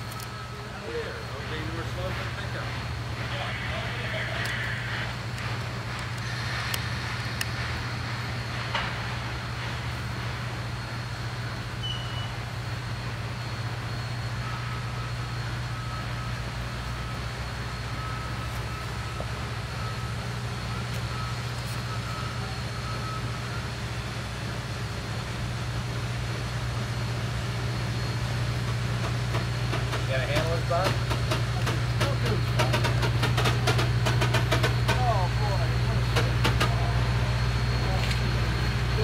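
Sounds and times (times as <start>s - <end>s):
train rumbling drone: 0.0s - 39.0s
train clicks: 0.9s - 10.8s, 28.6s - 36.9s.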